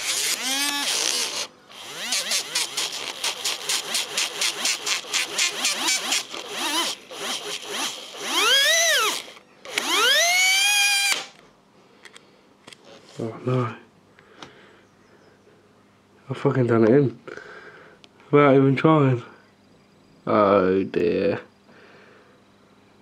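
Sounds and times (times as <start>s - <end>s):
small electric motor stuttering and whining: 0.0s - 11.4s.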